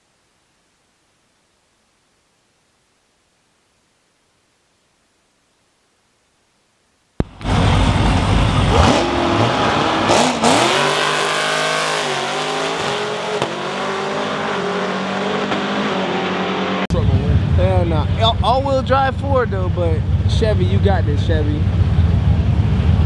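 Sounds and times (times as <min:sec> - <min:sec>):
racing car engines revving: 0:07.2 - 0:23.0.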